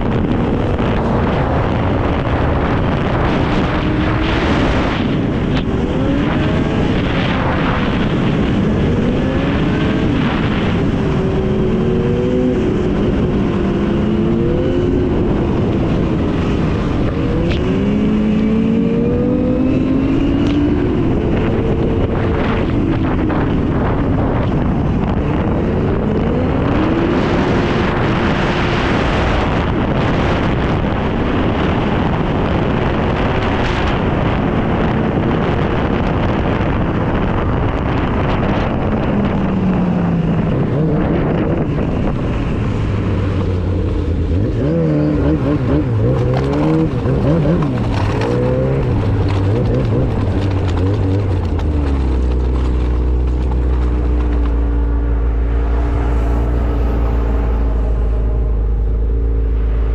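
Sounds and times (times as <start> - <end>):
steady rushing noise: 0.0 - 59.9
snowmobile engine revving: 40.5 - 55.0.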